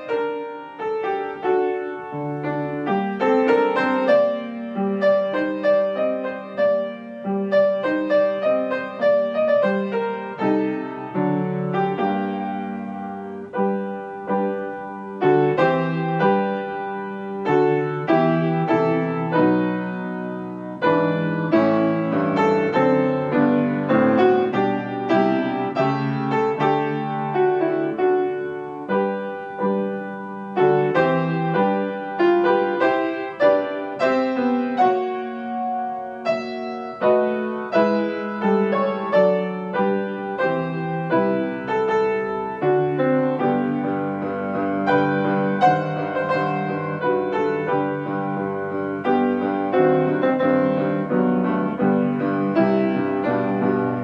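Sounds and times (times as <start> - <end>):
slow gentle piano piece: 0.0 - 54.0.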